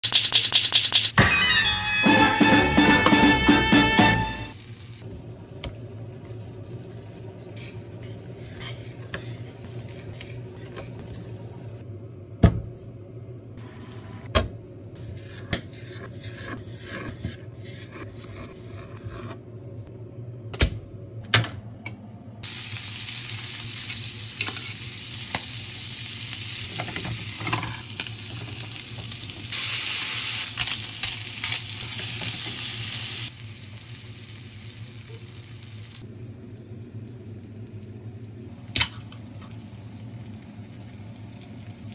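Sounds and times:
food sizzling in sandwich maker: 22.4s - 37.9s.

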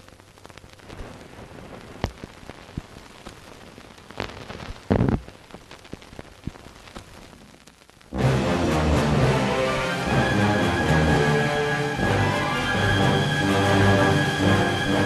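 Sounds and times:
clicks and pops: 0.0s - 3.5s, 4.1s - 8.1s
film soundtrack hiss: 0.0s - 15.0s.

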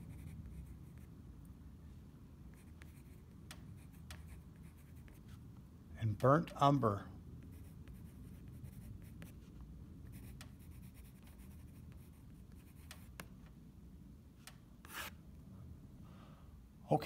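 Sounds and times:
pencil scratching on paper: 0.0s - 1.1s, 2.5s - 5.4s, 7.4s - 9.5s, 10.1s - 13.2s, 14.8s - 15.1s.

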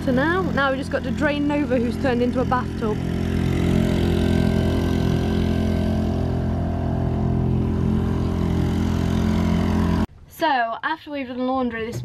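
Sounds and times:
boat engine running: 0.0s - 10.2s.

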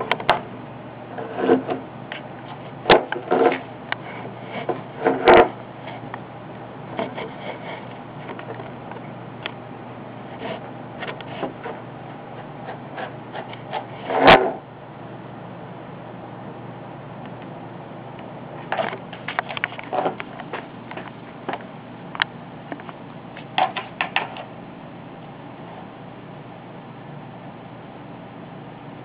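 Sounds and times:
scratching on a hard surface: 1.1s - 6.1s, 6.9s - 9.1s, 10.3s - 14.6s.

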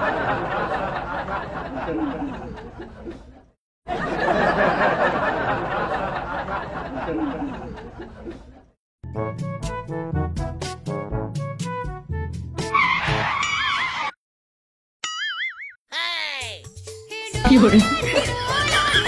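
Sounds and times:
men laughing and talking: 0.0s - 8.7s, 17.5s - 19.0s.

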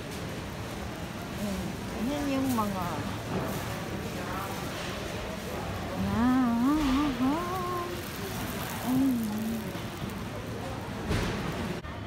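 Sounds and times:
person humming a tune: 6.0s - 8.0s, 8.8s - 9.8s.

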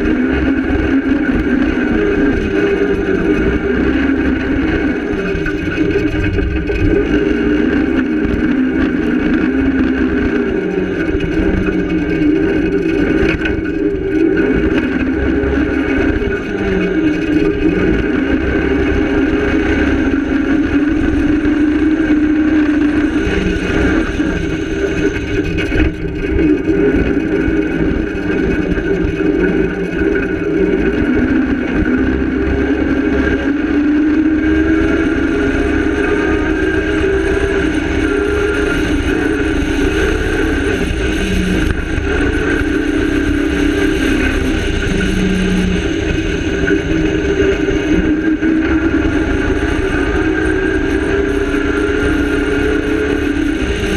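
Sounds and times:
rally car engine revving: 0.0s - 53.9s.

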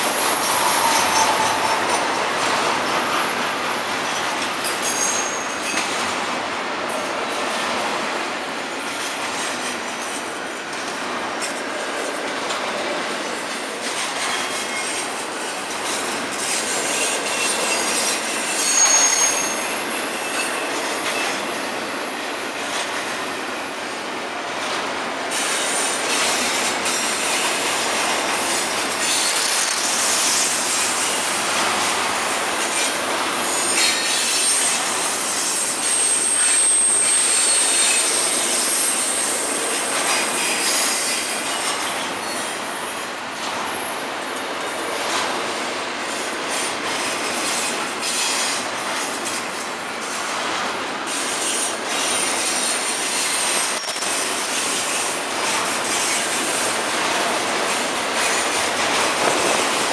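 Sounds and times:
high-pitched wheel squeals: 0.0s - 3.2s, 4.8s - 5.8s, 16.6s - 21.3s, 33.6s - 41.3s
freight train wheels clattering on rails: 0.0s - 59.9s.

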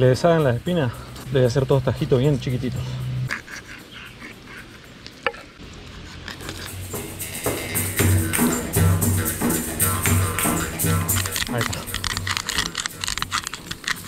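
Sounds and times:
music with pulsing beat: 6.7s - 13.3s.

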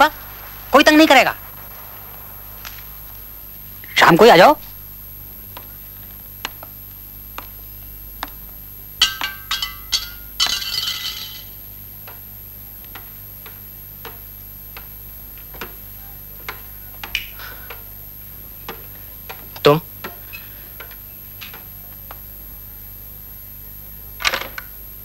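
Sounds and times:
ringing clinks: 9.0s - 11.6s.

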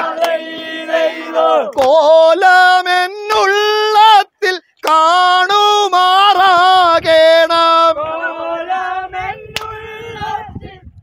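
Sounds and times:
group singing long held notes: 0.0s - 3.4s, 6.3s - 11.0s.

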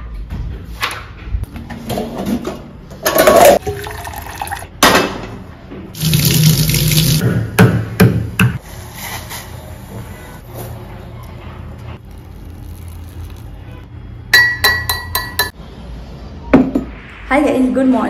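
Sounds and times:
water pouring into saucepan: 3.6s - 4.7s, 6.0s - 7.2s.

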